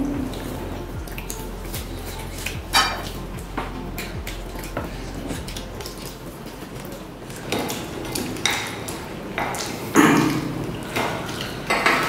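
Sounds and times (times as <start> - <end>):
spoon clinking in a glass bowl: 2.7 - 3.2.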